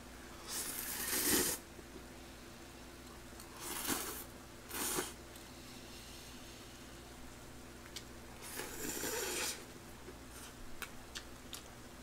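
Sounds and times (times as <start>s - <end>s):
man slurping noodles: 0.5s - 1.6s, 8.4s - 9.6s.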